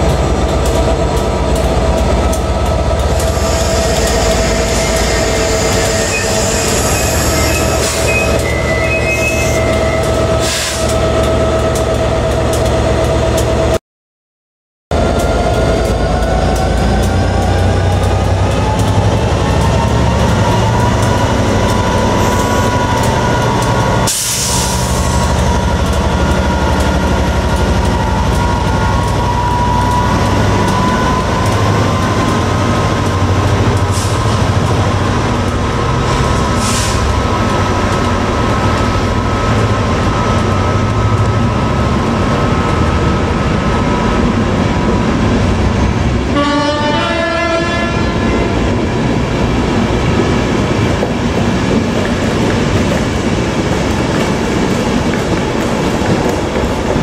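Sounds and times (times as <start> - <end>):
diesel locomotive engine whine: 0.0 - 13.8, 14.9 - 57.0
rising tones of rolling coaches: 0.0 - 13.8, 14.9 - 57.0.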